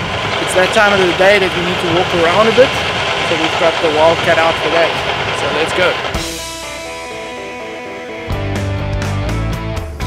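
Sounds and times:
bass and drums: 0.0 - 10.0
rock music with guitar: 5.9 - 10.0.

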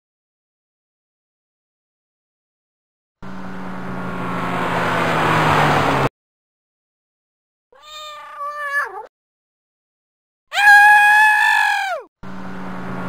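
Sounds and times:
cartoon car engine: 3.2 - 6.1, 10.6 - 13.0
cat meowing: 7.8 - 9.1, 10.5 - 12.1.

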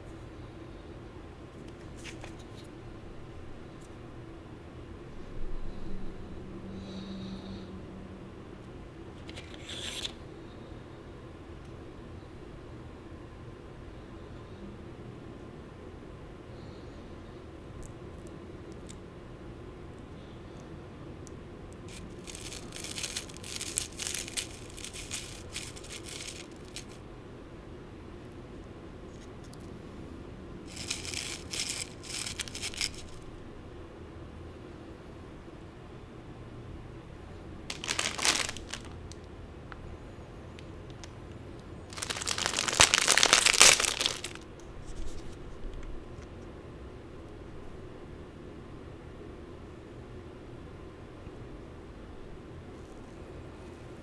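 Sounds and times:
soft plastic rustles: 1.6 - 2.8, 9.2 - 10.2, 21.9 - 27.0, 30.7 - 33.3, 37.7 - 39.3, 41.8 - 45.9
grains rattling against plastic: 21.9 - 27.0, 30.7 - 33.2, 37.7 - 39.1, 41.9 - 44.4
plastic wrapper crinkling: 21.9 - 27.0, 30.7 - 33.2, 37.7 - 39.3, 41.9 - 44.4
stick scraping in plastic cup: 21.9 - 27.0, 30.7 - 33.2.

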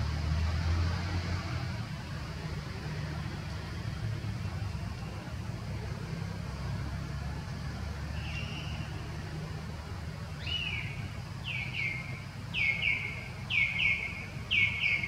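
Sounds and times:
bird calling: 10.4 - 15.0.

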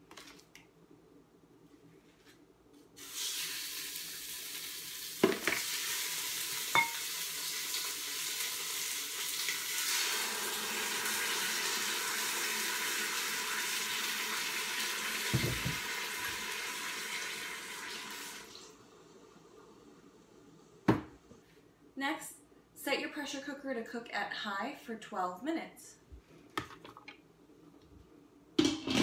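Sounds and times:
chicken sizzling in a pot: 3.0 - 18.8.

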